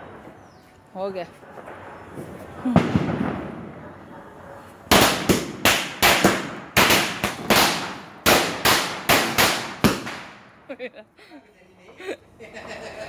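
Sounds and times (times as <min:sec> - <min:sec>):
firecrackers bursting: 0:00.0 - 0:10.6.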